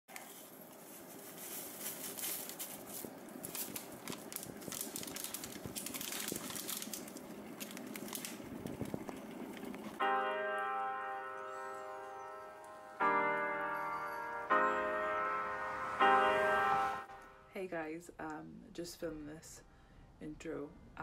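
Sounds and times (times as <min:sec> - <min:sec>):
paper sachet crinkling: 0:00.1 - 0:09.2
piano music: 0:10.0 - 0:17.7.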